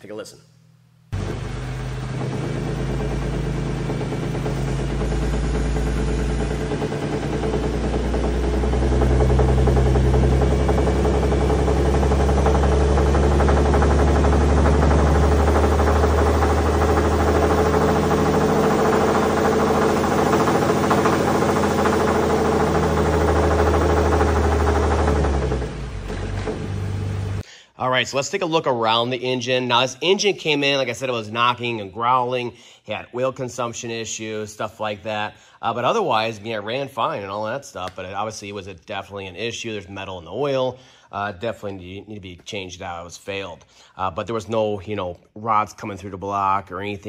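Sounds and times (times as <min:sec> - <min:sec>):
engine knocking and revving: 0:01.2 - 0:27.4.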